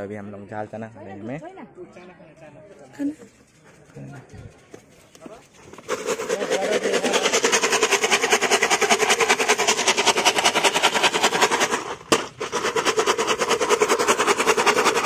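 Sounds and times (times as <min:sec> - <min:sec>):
small engine idling: 0:05.7 - 0:15.0.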